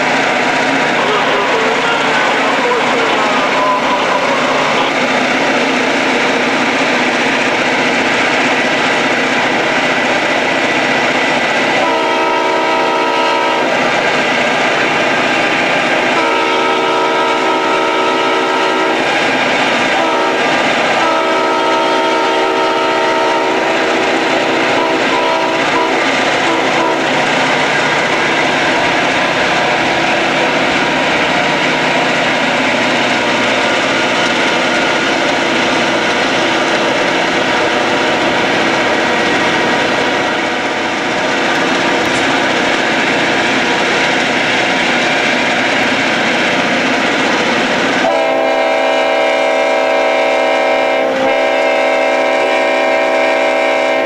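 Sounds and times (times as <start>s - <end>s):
freight train rumbling: 0.0s - 54.0s
wind: 0.0s - 54.0s
locomotive air horn blasts: 11.8s - 13.8s, 16.1s - 19.1s, 19.9s - 27.2s, 48.0s - 54.0s.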